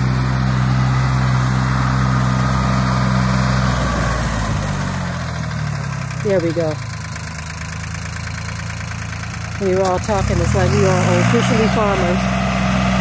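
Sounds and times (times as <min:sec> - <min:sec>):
tractor engine running: 0:00.0 - 0:13.0.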